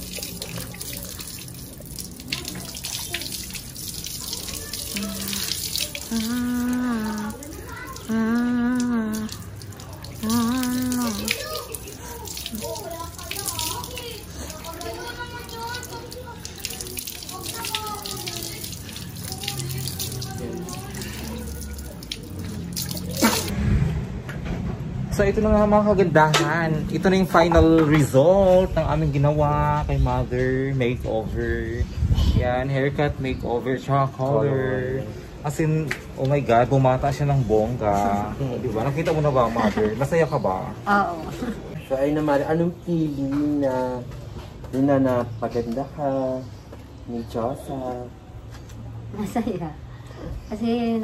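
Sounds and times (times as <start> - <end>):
water splashing onto floor: 0.0 - 23.5.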